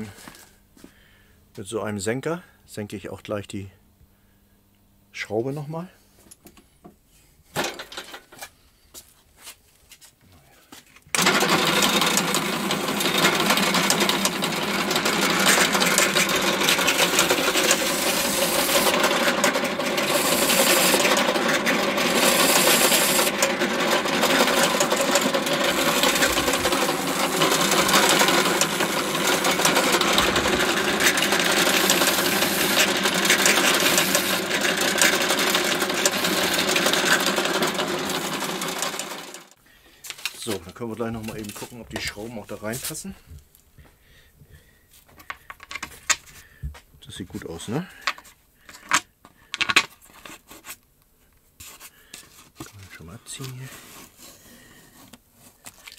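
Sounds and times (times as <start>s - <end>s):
drill press motor humming: 11.1s - 39.6s.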